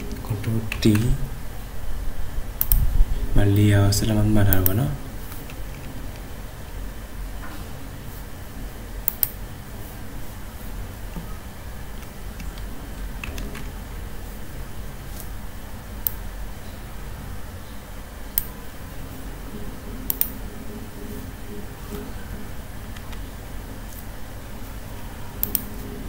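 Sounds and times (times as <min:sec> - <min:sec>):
low background hum: 0:00.0 - 0:26.0
computer mouse clicks: 0:02.6 - 0:02.9, 0:09.0 - 0:09.4, 0:12.0 - 0:13.7, 0:20.1 - 0:20.4, 0:23.0 - 0:23.3, 0:25.4 - 0:25.7.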